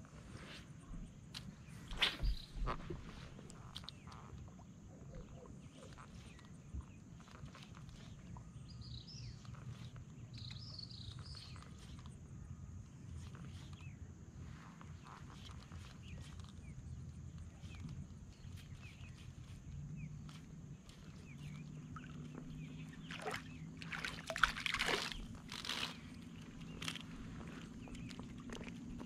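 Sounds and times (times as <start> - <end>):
bird chirping: 16.0 - 29.0.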